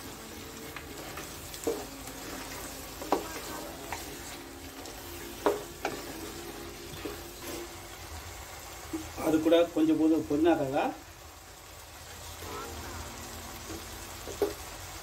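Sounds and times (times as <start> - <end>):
spatula scraping a pan: 0.0 - 7.8
food sizzling in a frying pan: 0.0 - 15.0.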